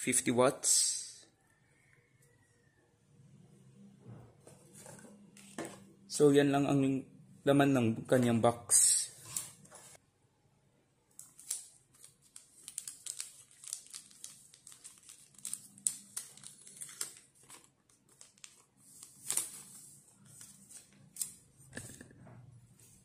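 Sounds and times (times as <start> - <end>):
plastic packaging crinkling: 11.2 - 19.8.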